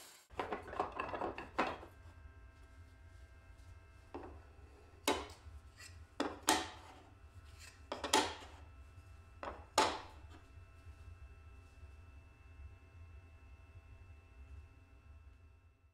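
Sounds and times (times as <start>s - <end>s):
boards knocking on metal table: 5.1s - 5.4s, 6.2s - 7.0s, 7.9s - 8.6s, 9.4s - 10.2s.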